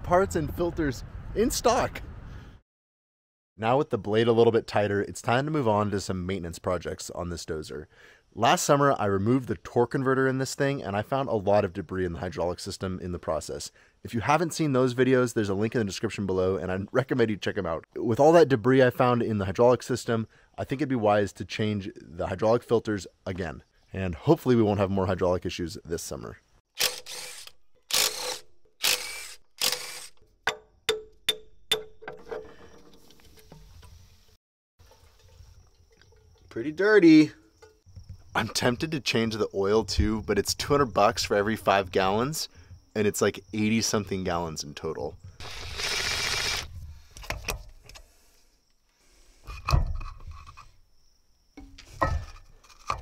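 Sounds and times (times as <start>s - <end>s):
cordless power tool bursts: 26.8s - 30.2s, 45.4s - 46.7s
metal clinks and knocks: 30.2s - 34.0s, 34.8s - 36.6s, 37.3s - 38.3s, 51.6s - 53.0s.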